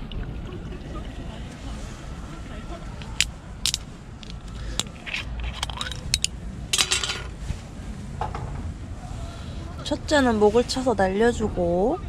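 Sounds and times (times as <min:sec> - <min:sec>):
glass and metal tableware clinking: 0:05.2 - 0:07.3.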